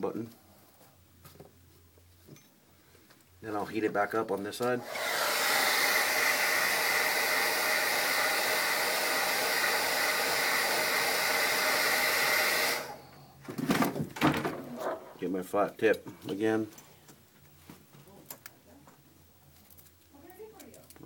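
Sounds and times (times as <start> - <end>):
hot-air blower running: 4.6 - 13.3.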